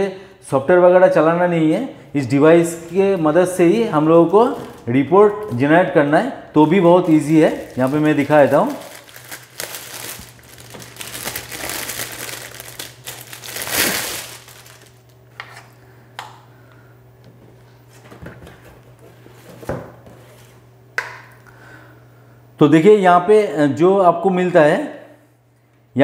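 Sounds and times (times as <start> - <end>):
packaging crinkling: 4.3 - 5.6, 7.0 - 15.2.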